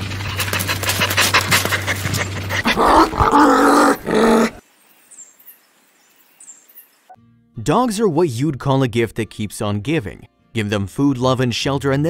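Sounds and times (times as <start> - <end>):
dog panting: 0.0 - 3.4
dog growling: 0.4 - 4.6.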